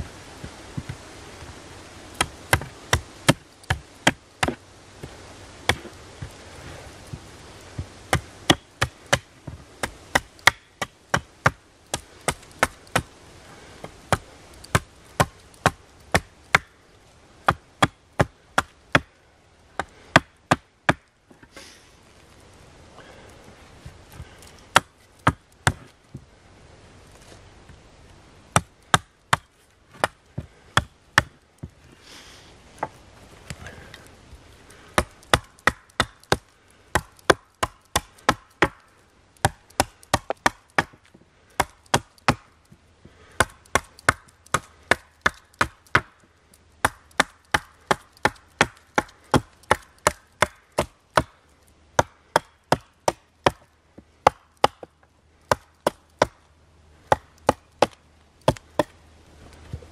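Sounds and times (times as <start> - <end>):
hatchet chopping wood: 2.1 - 6.4, 7.8 - 13.1, 13.8 - 16.8, 17.4 - 21.1, 24.2 - 26.0, 28.5 - 31.8, 34.7 - 46.2, 46.8 - 59.0.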